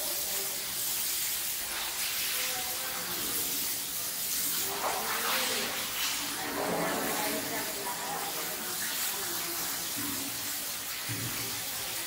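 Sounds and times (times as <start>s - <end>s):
running water hissing: 0.0s - 12.0s
faint voices: 4.6s - 12.0s.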